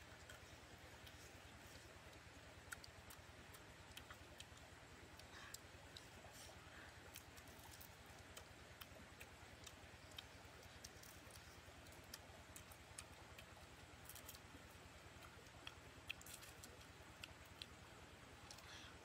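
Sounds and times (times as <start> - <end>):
person chewing: 0.0 - 18.9.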